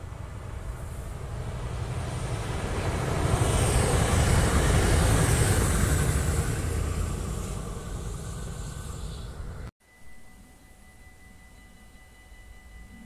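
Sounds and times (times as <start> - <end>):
electric train passing: 0.0 - 13.0
faint high whine: 5.5 - 13.0.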